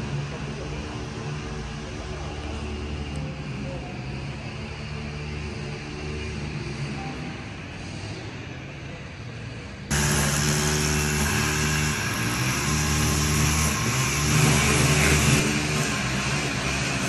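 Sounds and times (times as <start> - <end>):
street noise: 0.0 - 17.0
vehicle engine running: 9.9 - 17.0.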